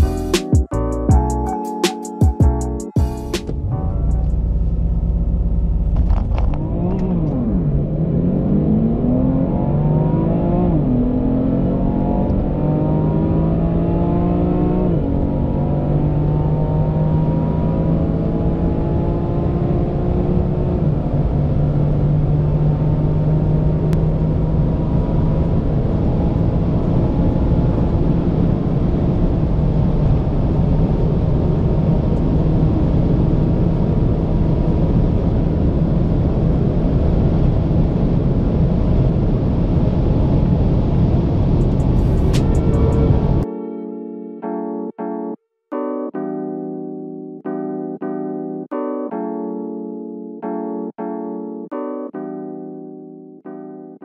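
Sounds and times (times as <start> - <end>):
car engine at full throttle: 3.4 - 43.4.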